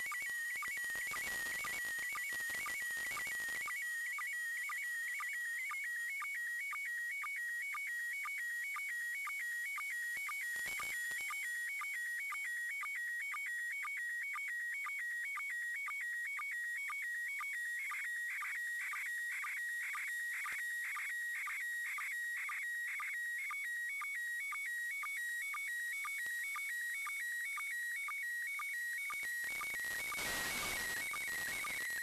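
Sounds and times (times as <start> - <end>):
radio noise hiss: 29.5 - 32.0.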